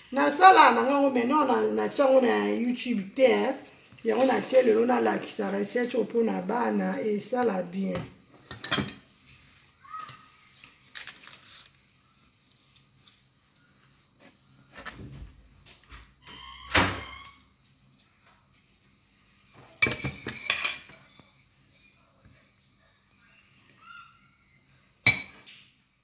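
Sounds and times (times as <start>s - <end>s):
dishes and utensils clinking: 8.5s - 9.1s, 19.7s - 21.1s, 25.0s - 25.6s.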